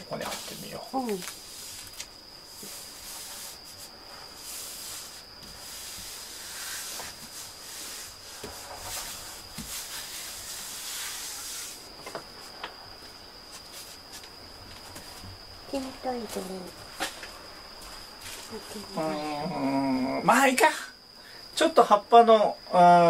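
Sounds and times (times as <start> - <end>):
hands rubbing a wall sticker: 0.2 - 12.6.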